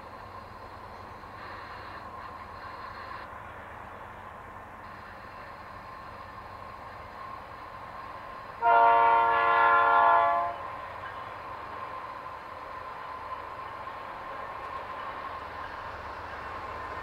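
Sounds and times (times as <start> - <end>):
train running: 0.0 - 17.0
locomotive air horn blast: 8.6 - 10.7.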